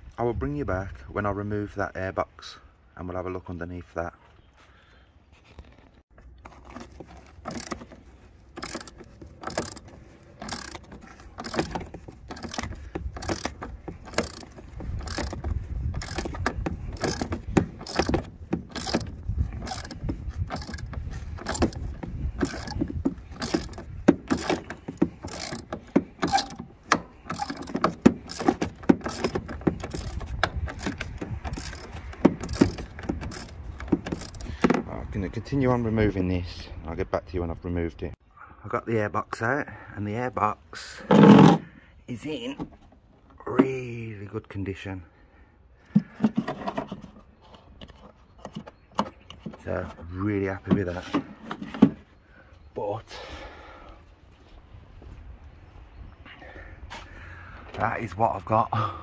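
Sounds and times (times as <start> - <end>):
socket ratchet clicking: 7.5 - 34.5.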